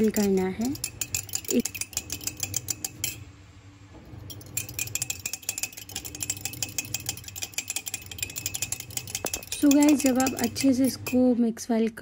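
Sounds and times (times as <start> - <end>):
metal utensil beating egg in mug: 0.0 - 3.3, 4.3 - 11.4.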